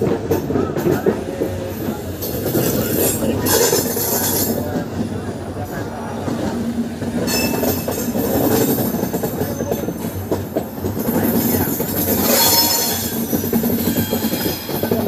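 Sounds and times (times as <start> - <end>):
train wheels rumbling on rails: 0.0 - 15.0
high wheel squeal: 7.3 - 7.9, 12.0 - 15.0.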